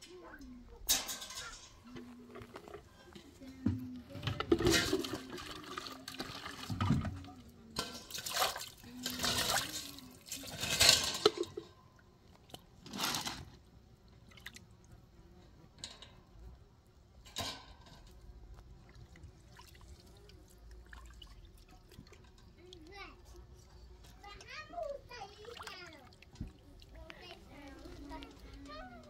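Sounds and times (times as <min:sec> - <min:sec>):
water splashing and pouring: 0:04.2 - 0:11.7, 0:18.8 - 0:23.1, 0:24.8 - 0:29.0
water dripping: 0:18.5 - 0:23.6, 0:24.3 - 0:29.0.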